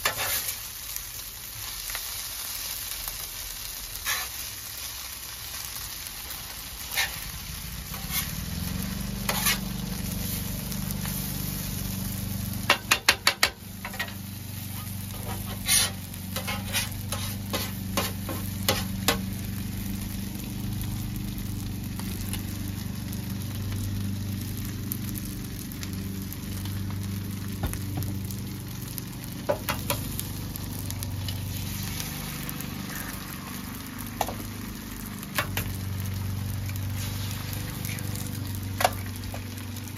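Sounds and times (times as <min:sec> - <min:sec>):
metal spatula scraping and clacking: 0:00.0 - 0:00.6, 0:04.0 - 0:04.4, 0:06.9 - 0:07.3, 0:07.9 - 0:08.4, 0:09.2 - 0:09.8, 0:12.7 - 0:19.2
rice sizzling on a griddle: 0:00.0 - 0:39.9.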